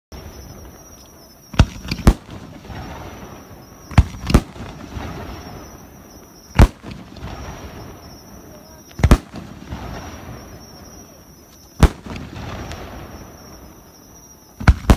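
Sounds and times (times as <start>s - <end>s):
firework shells bursting: 1.5s - 5.8s
firework hiss: 1.6s - 11.2s.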